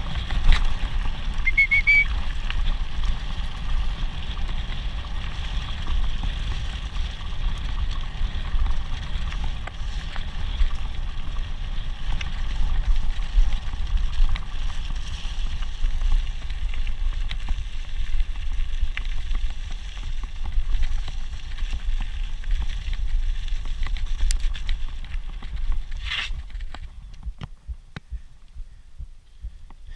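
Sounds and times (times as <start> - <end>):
short high squeal: 1.5 - 2.1.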